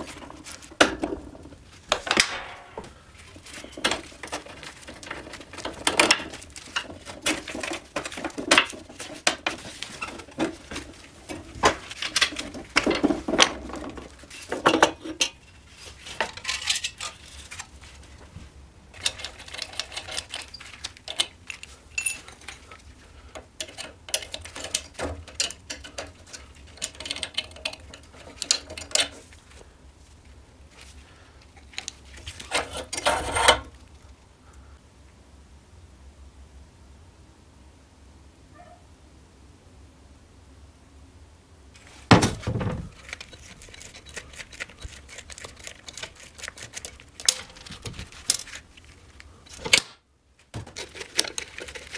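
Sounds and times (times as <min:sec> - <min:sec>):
metal parts and tools clinking: 0:01.9 - 0:17.7, 0:18.9 - 0:29.3.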